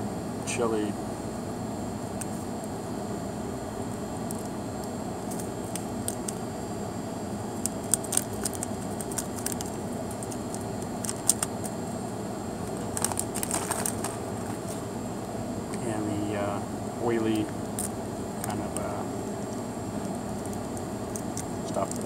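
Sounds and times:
steady low hum: 0.0 - 22.0
plastic sachet crinkling: 5.3 - 6.4, 7.5 - 11.7, 12.6 - 14.8, 20.4 - 22.0.

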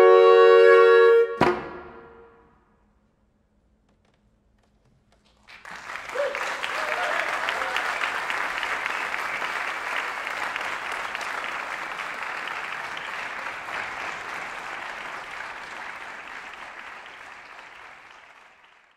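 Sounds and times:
audience applauding: 5.2 - 18.9.

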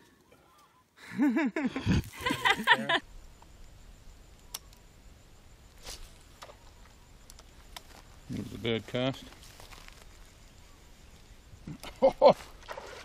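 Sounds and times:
low outdoor background: 0.0 - 13.0
faint clicks: 3.4 - 4.8.

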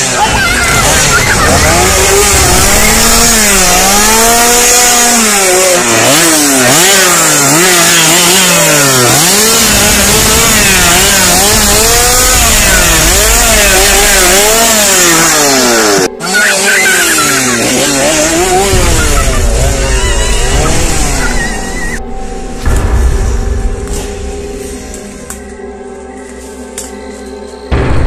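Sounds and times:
chainsaw engine revving: 0.0 - 22.0.

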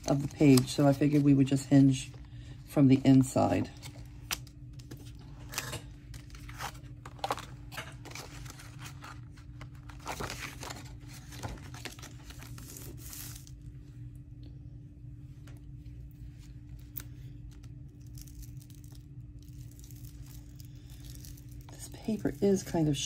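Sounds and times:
steady low hum: 0.0 - 23.0
paper rustling and crinkling: 3.1 - 13.6.

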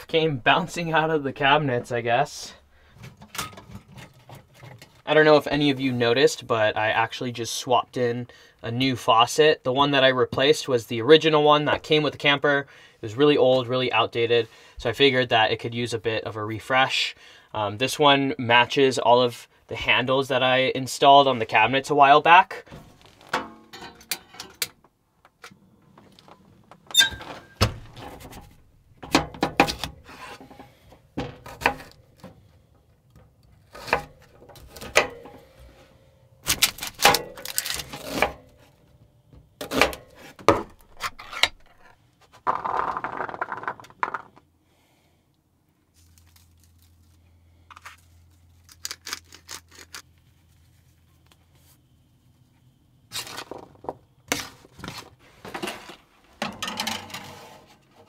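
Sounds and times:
kitchen items clattering: 3.0 - 5.0, 22.7 - 24.7, 54.6 - 58.0.

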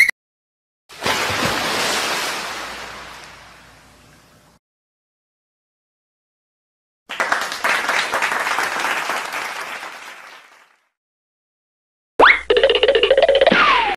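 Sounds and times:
clapping: 7.1 - 10.9.

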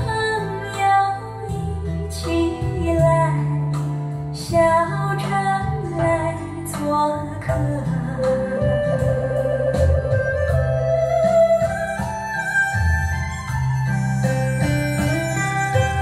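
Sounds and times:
woman singing slow melody: 0.0 - 12.0
bass line: 0.0 - 16.0
recorded music over speakers: 0.0 - 16.0.

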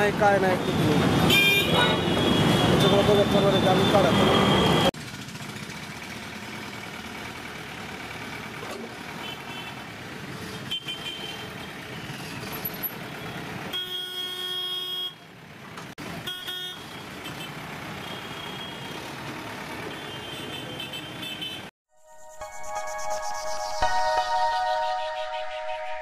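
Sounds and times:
street traffic: 0.0 - 21.8
vehicle horn: 1.3 - 4.9, 16.2 - 18.9, 19.9 - 21.7.

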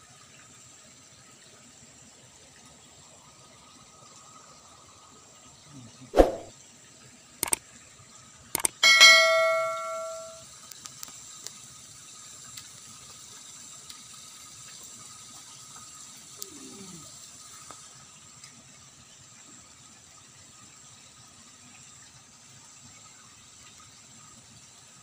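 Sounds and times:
short clicks: 8.6 - 8.8
bell-like metallic clang: 8.8 - 10.4.

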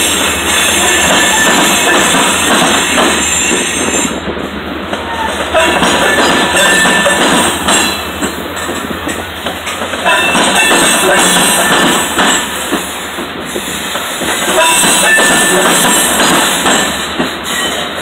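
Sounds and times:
clicking over rail joints: 0.0 - 18.0
train wheels rumbling on rails: 0.0 - 18.0
high wheel squeals: 17.4 - 17.9.

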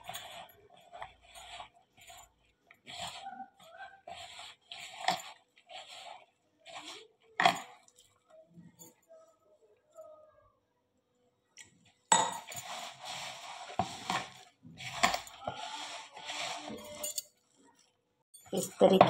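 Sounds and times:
hand squishing wet dough: 0.0 - 8.5.

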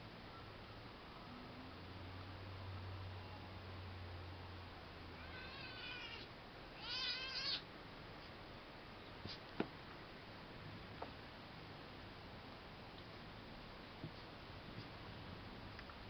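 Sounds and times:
kitten meowing: 5.2 - 7.6.

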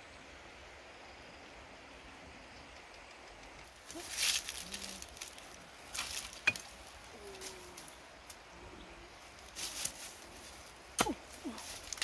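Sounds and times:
leaves and twigs rustling: 3.2 - 12.0
twig snapping: 11.0 - 12.0.

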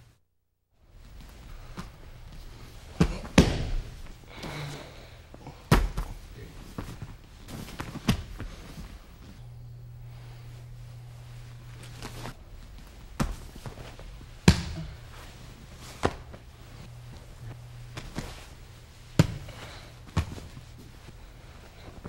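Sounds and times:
bodies thudding on training mat: 1.7 - 4.6, 5.6 - 9.0, 13.0 - 15.3, 15.9 - 16.4, 17.9 - 20.8.

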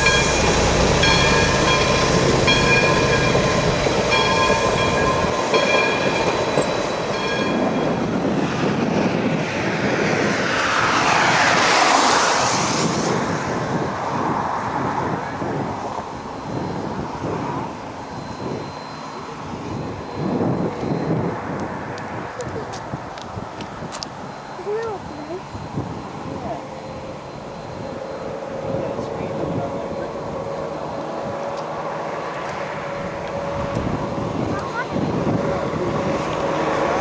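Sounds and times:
high ringing tone: 0.0 - 8.6, 15.8 - 22.4, 24.1 - 31.6
steam locomotive passing: 0.0 - 37.0.

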